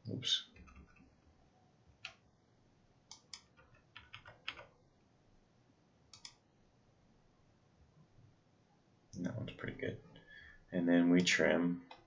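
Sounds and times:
computer mouse and keyboard clicks: 3.1 - 4.8, 6.1 - 6.4.

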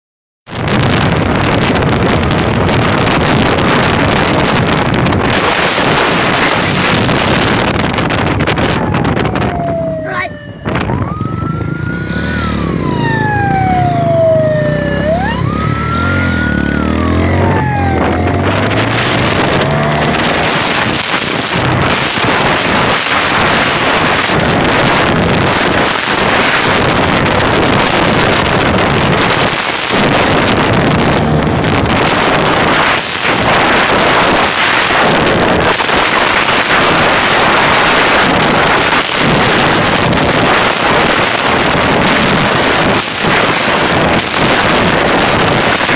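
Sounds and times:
wind buffeting microphone: 0.5 - 45.9
police siren wailing: 0.6 - 45.9
motorcycle engine: 6.1 - 22.8.

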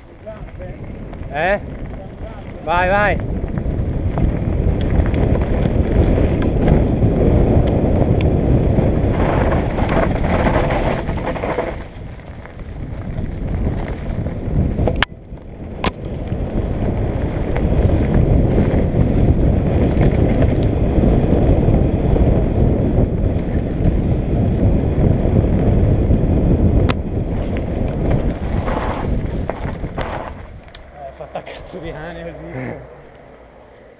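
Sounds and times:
bike tyre rumble on dirt: 0.0 - 33.9
wind buffeting microphone: 0.0 - 33.9.

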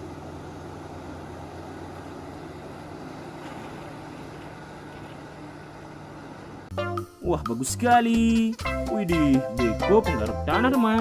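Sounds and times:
excavator diesel engine droning: 0.0 - 6.8.

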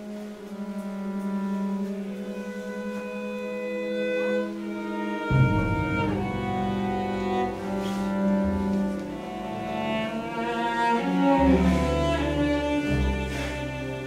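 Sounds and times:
cello and orchestra playing: 0.0 - 14.0
deep bass notes: 5.2 - 13.3.

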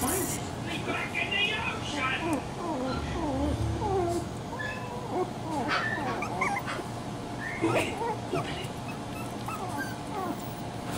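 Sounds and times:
puppies whimpering and yipping: 2.0 - 10.8.

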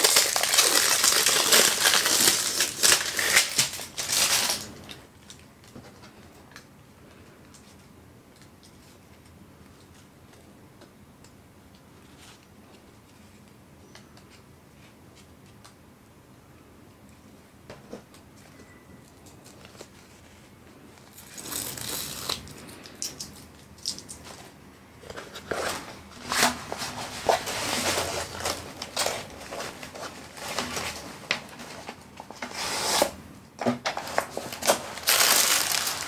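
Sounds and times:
plastic rustling and crinkling: 0.0 - 10.5, 19.1 - 36.0.

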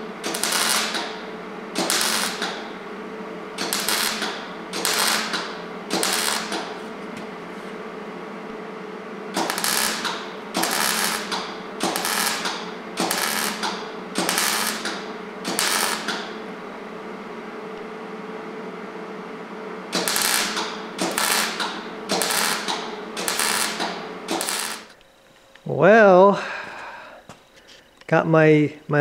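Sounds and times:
welder crackling bursts: 0.0 - 2.8, 3.6 - 6.8, 9.3 - 16.3, 19.9 - 25.0.

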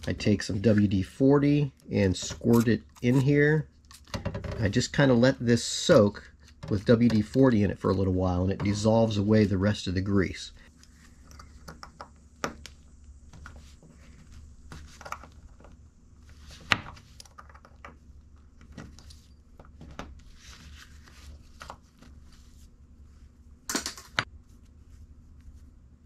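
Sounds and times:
low steady hum: 0.0 - 26.0
scratchy rustle: 20.2 - 23.4.

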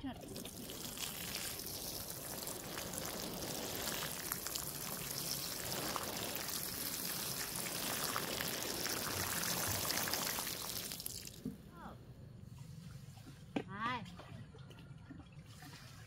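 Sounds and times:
water drops pattering: 0.0 - 11.5
water spraying on plants: 0.0 - 11.6.

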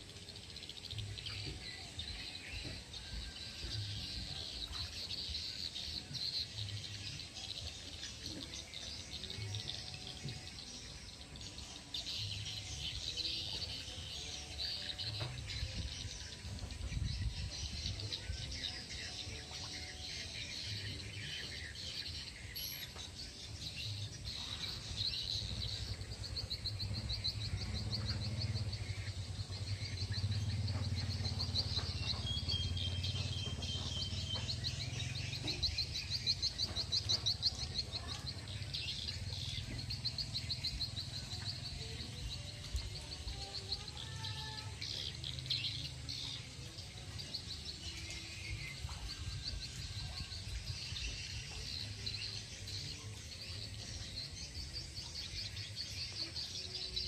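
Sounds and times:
birds chirping: 0.0 - 57.0
insects trilling: 17.9 - 57.0.

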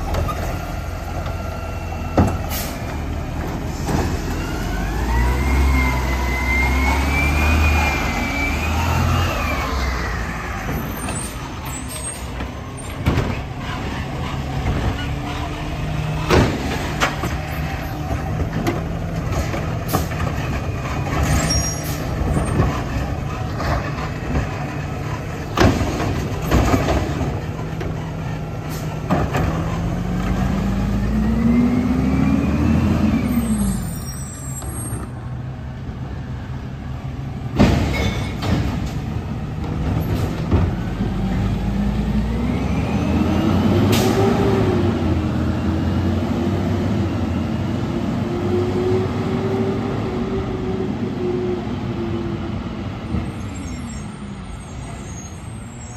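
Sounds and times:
truck engine revving: 0.0 - 34.9, 38.5 - 53.2
loader arm whine: 0.0 - 35.3
metal clanks and bangs: 37.5 - 40.8.

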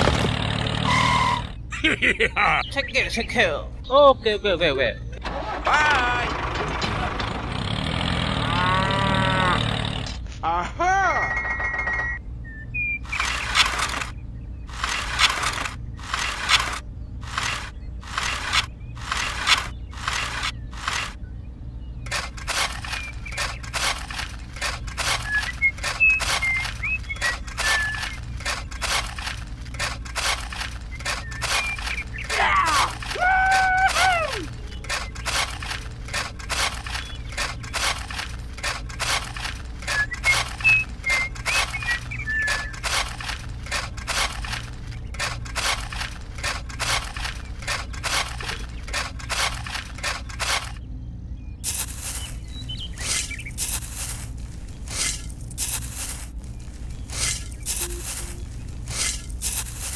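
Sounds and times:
metal shovel scraping earth: 0.0 - 1.5, 13.1 - 21.2, 22.0 - 50.8, 51.6 - 59.9.

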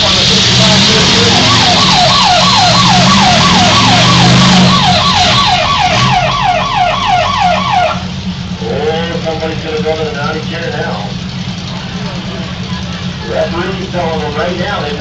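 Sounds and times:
car engines running: 0.0 - 15.0
warbling siren: 0.8 - 8.1.

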